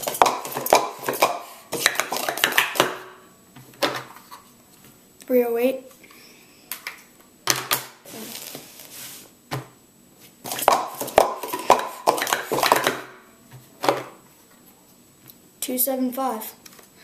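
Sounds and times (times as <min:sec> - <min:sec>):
plastic cups clattering: 0:00.0 - 0:03.0, 0:10.5 - 0:13.1
hands slapping timer pads: 0:00.0 - 0:03.1, 0:10.5 - 0:13.1.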